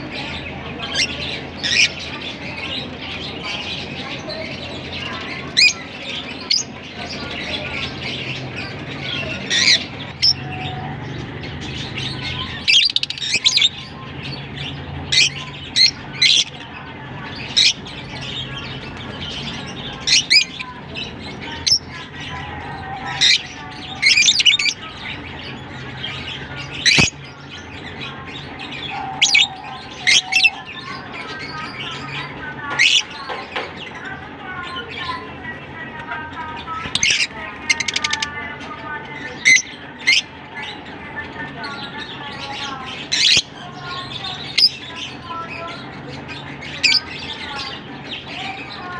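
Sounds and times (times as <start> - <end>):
birds chirping and squawking: 0.0 - 48.9.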